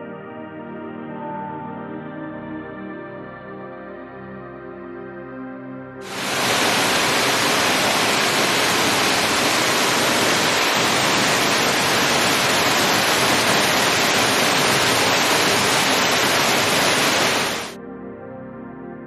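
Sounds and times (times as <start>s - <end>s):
stream water over rocks: 6.1s - 17.8s.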